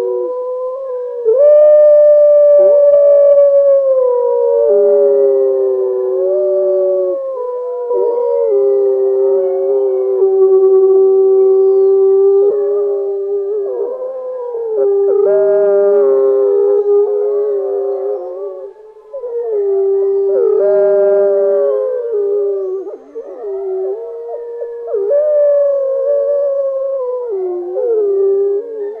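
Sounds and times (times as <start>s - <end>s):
wolves howling: 0.0s - 29.0s.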